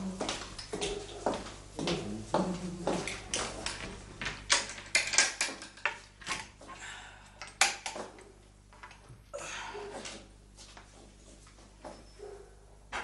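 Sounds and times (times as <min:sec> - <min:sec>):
clicks and knocks on shelves: 0:03.0 - 0:06.8, 0:07.4 - 0:09.2.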